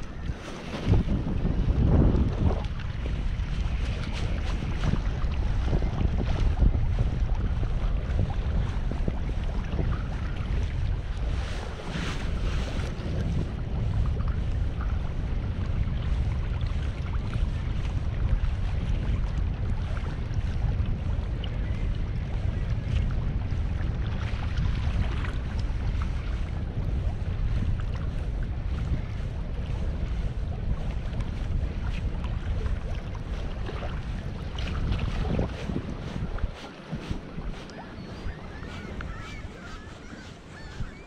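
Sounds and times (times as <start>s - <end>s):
wind rumbling on microphone: 0.0s - 41.0s.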